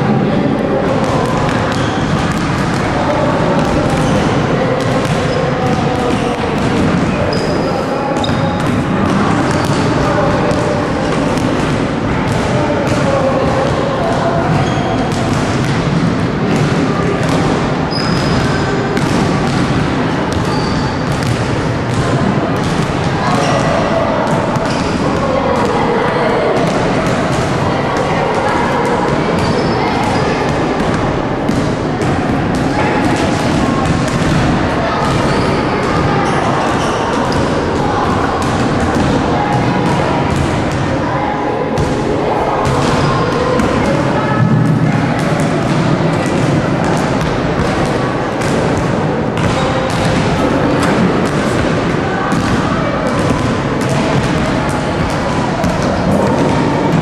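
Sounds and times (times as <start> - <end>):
children chattering: 0.0 - 57.0
balls hitting backboard and rim: 0.8 - 40.9, 41.8 - 42.0, 42.6 - 57.0
basketballs bouncing on gym floor: 0.8 - 41.0, 41.8 - 57.0
children's voices: 22.0 - 48.3.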